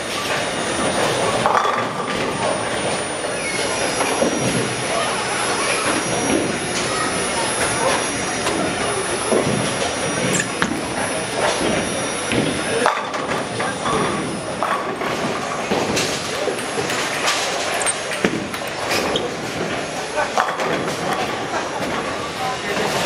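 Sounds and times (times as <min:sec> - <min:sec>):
bowling balls rumbling down lanes: 0:00.2 - 0:23.0
voices chattering: 0:02.4 - 0:23.0.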